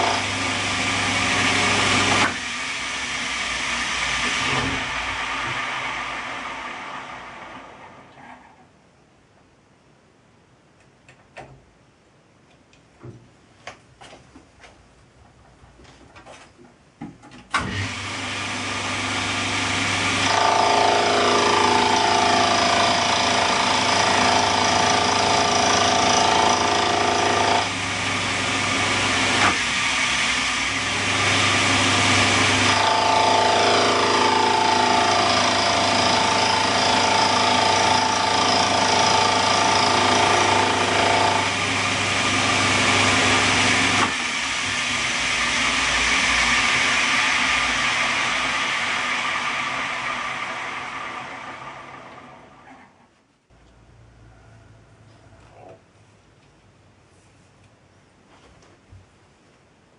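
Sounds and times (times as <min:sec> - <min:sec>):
milling machine humming: 0:00.0 - 0:08.2, 0:17.6 - 0:53.0
cutter whine: 0:17.6 - 0:53.0.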